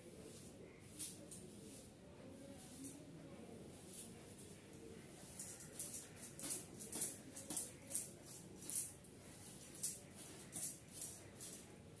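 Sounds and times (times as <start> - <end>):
comb swishing through hair: 0.2 - 2.0.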